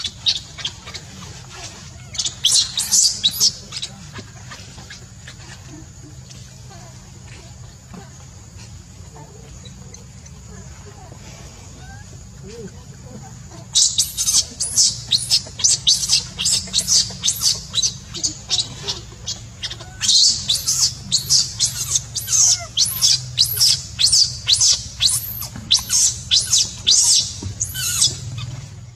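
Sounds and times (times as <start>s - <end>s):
baby monkey shrill squeaks: 0.0s - 4.6s, 13.7s - 28.5s
steady low hum: 0.0s - 28.9s.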